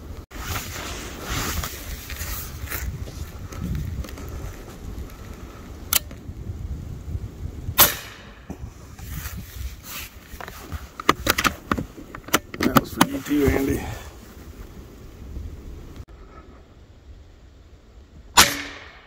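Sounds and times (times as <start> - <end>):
handling noise rustle: 0.1 - 6.3, 8.4 - 16.0
air rifle shot: 7.8 - 8.5, 18.4 - 19.0.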